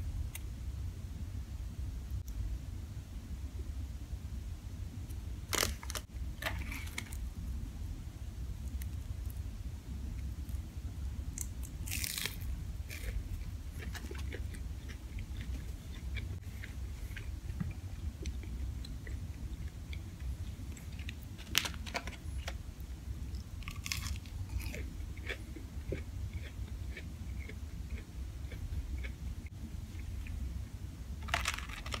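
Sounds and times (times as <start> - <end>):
low steady hum: 0.0 - 32.0
chewing and crunching: 11.4 - 22.6, 23.3 - 30.4.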